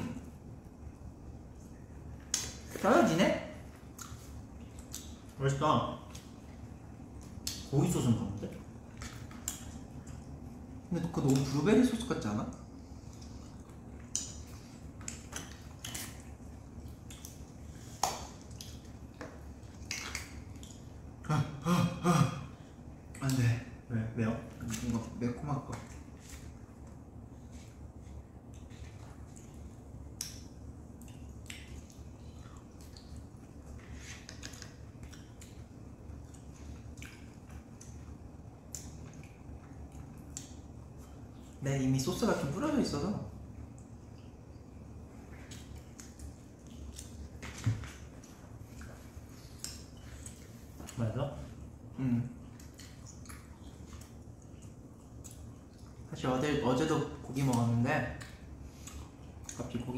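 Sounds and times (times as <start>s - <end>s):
chewing with wet smacks: 0.0s - 2.8s, 3.5s - 21.3s, 22.6s - 42.5s, 43.3s - 56.2s, 56.8s - 59.9s
low steady hum: 0.0s - 59.9s
person speaking: 2.7s - 3.6s.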